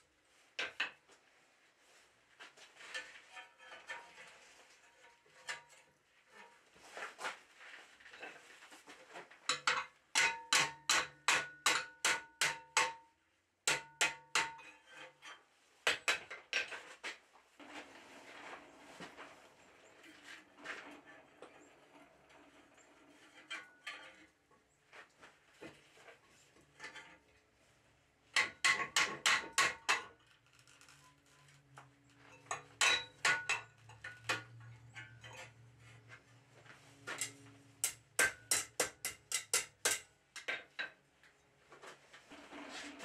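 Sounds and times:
hammer striking steel: 32.5s - 34.4s, 37.2s - 40.5s.

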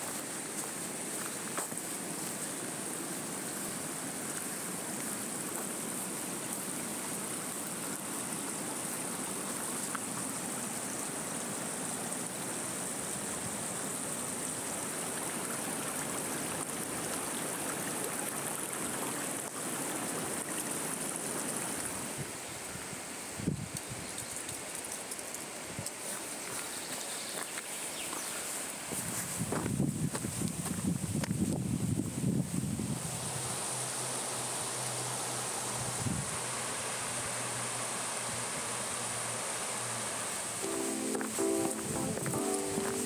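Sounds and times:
stream water rushing: 0.0s - 29.6s, 32.7s - 43.0s.

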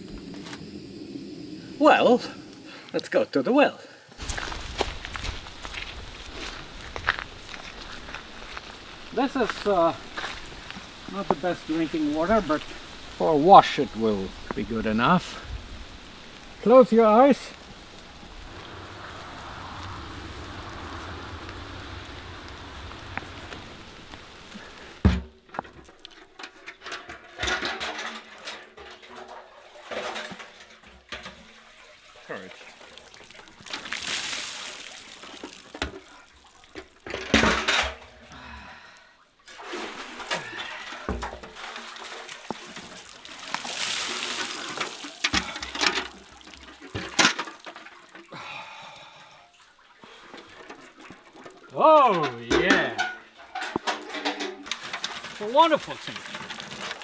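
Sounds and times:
steady hiss: 0.0s - 29.0s, 32.2s - 47.6s, 50.0s - 57.0s
water rushing: 0.7s - 38.4s, 39.3s - 57.0s
metal bucket knocks and clinks: 25.0s - 31.6s, 36.7s - 38.1s, 39.5s - 48.3s, 50.3s - 57.0s.

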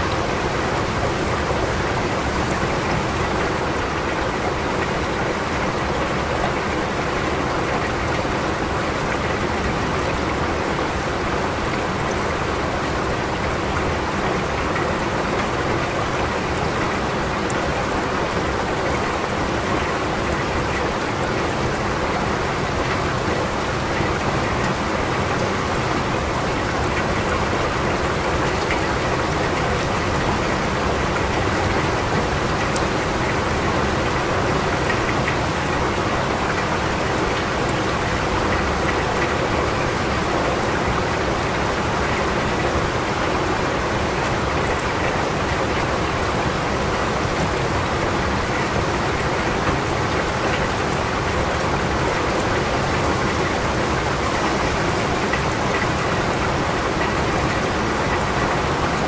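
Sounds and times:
steady rain: 0.0s - 59.0s
raindrops ticking: 12.9s - 46.3s.

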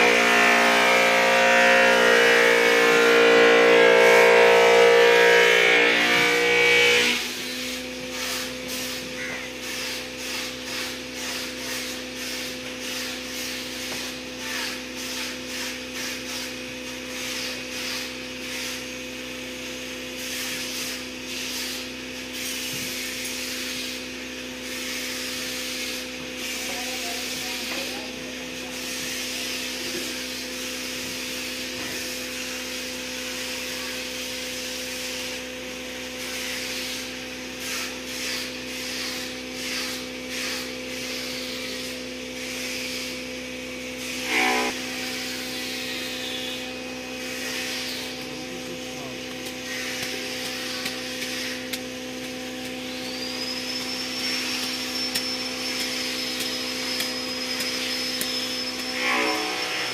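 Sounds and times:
fibre rubbing on wood: 49.3s - 52.4s.

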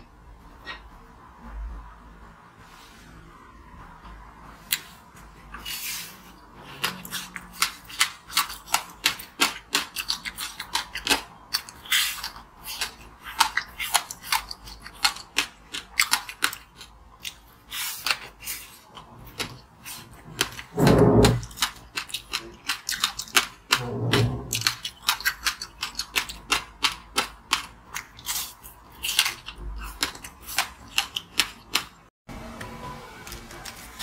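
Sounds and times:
ice being bitten and chewed: 24.5s - 32.0s.

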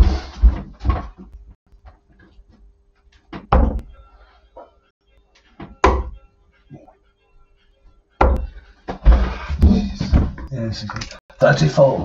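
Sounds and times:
knocks and thuds: 0.0s - 1.4s, 3.3s - 3.9s, 8.2s - 10.5s.

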